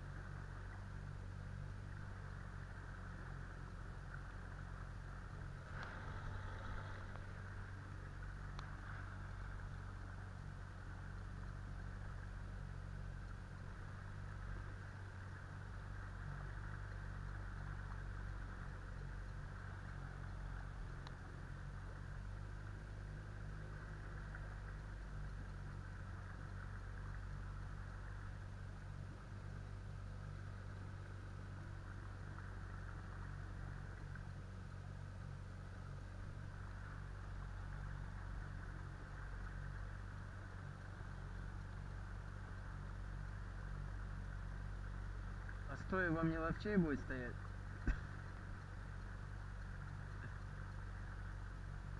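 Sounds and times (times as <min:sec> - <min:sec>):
boat motor humming: 0:00.0 - 0:51.9
faint click: 0:08.5 - 0:08.7.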